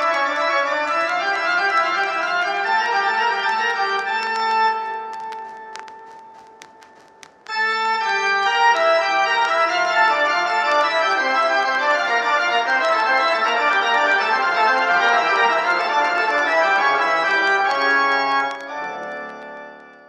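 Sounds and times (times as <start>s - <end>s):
organ-like keyboard chords: 8.0s - 20.0s.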